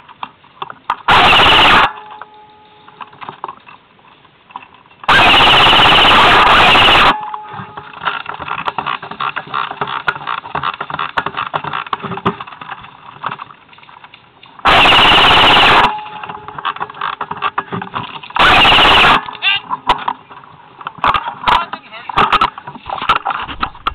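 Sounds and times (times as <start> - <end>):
handling clicks and rustles: 0.0 - 23.9
airsoft rifle firing bursts: 1.1 - 2.0, 5.1 - 7.2, 14.6 - 16.2, 18.4 - 19.2.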